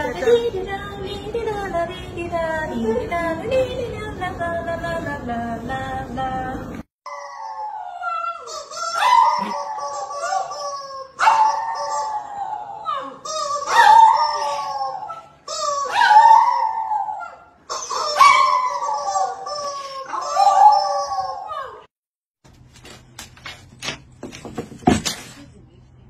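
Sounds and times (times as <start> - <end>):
small dog howling: 7.1 - 21.9.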